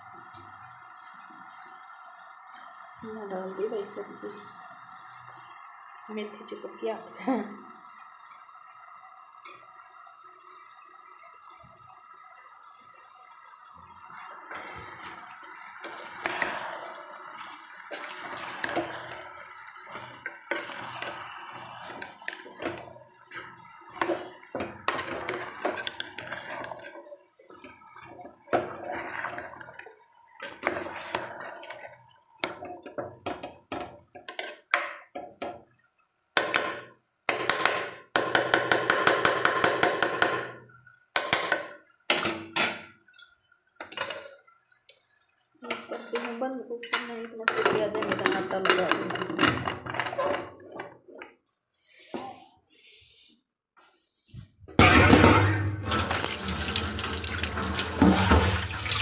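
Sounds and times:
metal utensils clattering in pot: 45.7 - 51.0, 54.8 - 59.0.

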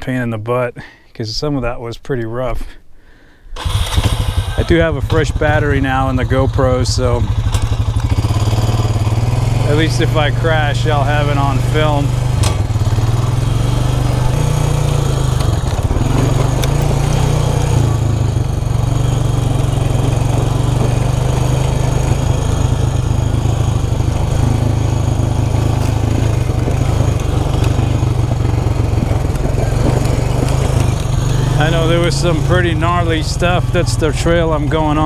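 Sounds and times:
road noise: 3.6 - 35.0
vehicle engine at low revs: 3.6 - 35.0
knocks from bumpy ground: 12.3 - 13.3.

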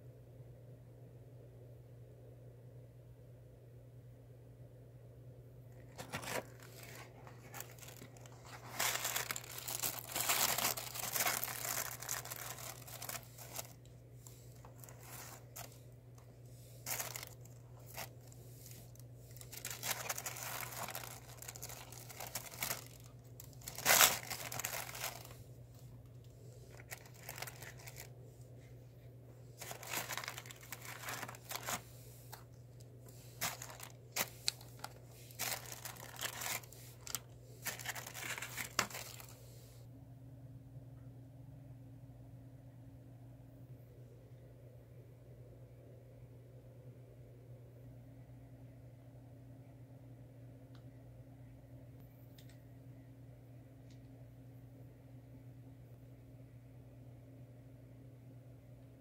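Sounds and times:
paper and plastic rustling: 5.8 - 28.1, 29.6 - 39.8.

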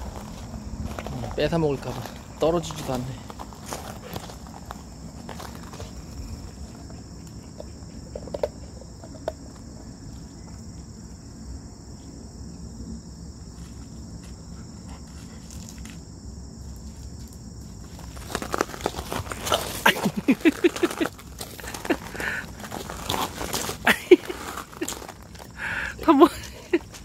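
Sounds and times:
insects chirping: 0.0 - 27.0
ice cube clicking on gravel: 18.0 - 25.5.

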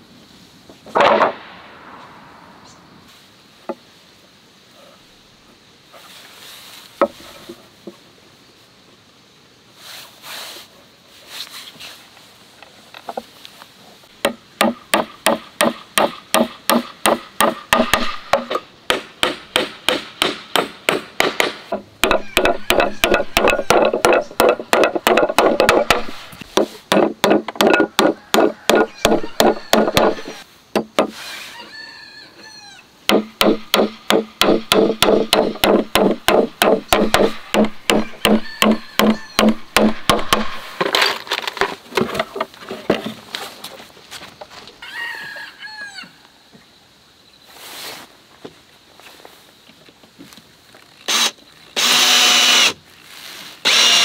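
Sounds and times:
handling knocks: 14.2 - 31.1
hammer driving nails into wood: 14.2 - 31.2, 33.1 - 41.0.

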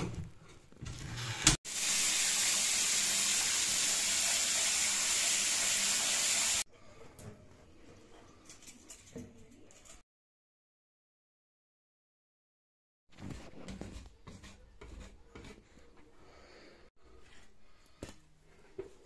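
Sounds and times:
tap water running into bathtub: 1.4 - 6.7.

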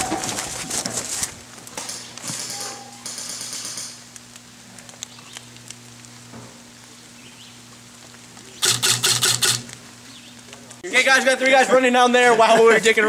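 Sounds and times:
light rain pattering on leaves: 3.2 - 10.8.

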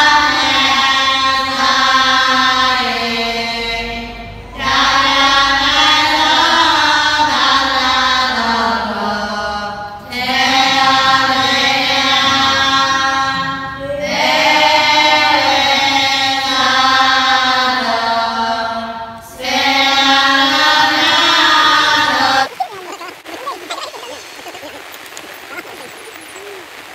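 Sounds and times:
group chanting in unison: 0.0 - 22.5.

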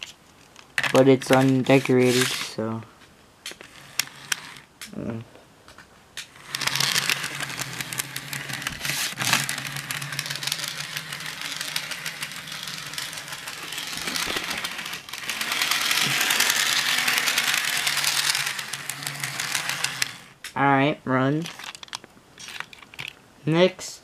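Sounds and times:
model train motor humming: 1.2 - 2.5, 3.6 - 4.6, 6.3 - 20.4.

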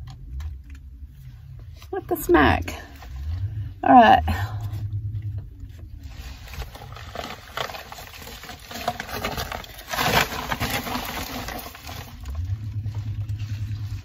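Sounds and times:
low hum: 0.0 - 14.0
close rustling and handling: 4.6 - 14.0.

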